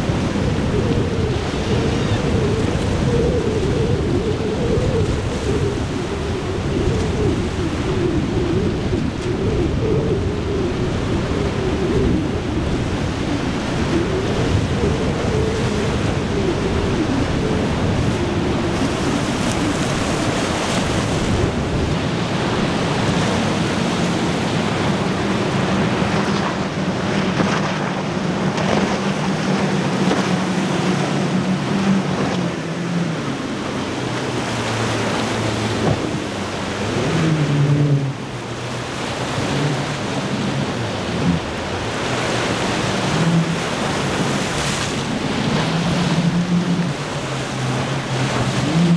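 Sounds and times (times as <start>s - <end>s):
outboard motors passing: 0.0s - 48.9s
wind on microphone: 0.0s - 48.9s
surf breaking: 15.4s - 48.9s.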